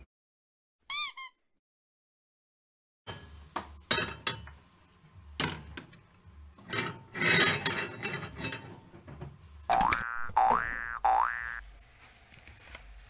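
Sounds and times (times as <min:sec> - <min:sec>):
pan scraping: 0:06.6 - 0:09.2.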